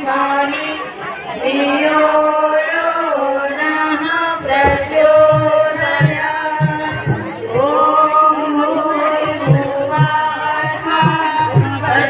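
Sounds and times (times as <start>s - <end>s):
devotional chanting: 0.0s - 12.0s
low drum beat: 4.4s - 8.1s, 8.7s - 12.0s.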